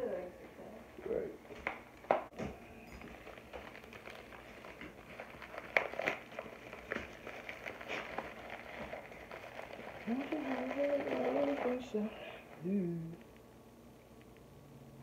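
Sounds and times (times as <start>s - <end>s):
paper packaging tearing and crinkling: 3.0s - 12.4s.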